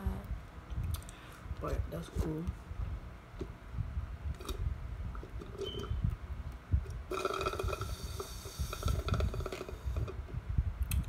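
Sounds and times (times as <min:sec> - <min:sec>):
wind buffeting microphone: 0:00.0 - 0:11.0
person drinking and swallowing: 0:06.8 - 0:10.3.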